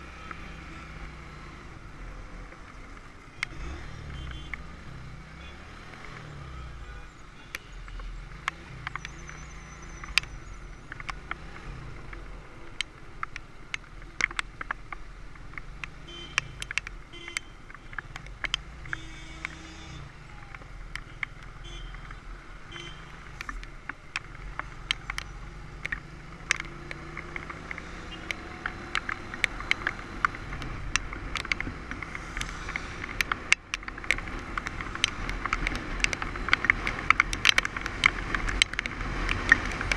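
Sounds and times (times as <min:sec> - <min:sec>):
motorcycle engine revving through gears: 0:00.0 - 0:07.1, 0:08.0 - 0:16.8, 0:17.7 - 0:39.9
wind and road noise: 0:00.0 - 0:39.9
sharp ticks and knocks: 0:07.5 - 0:39.9.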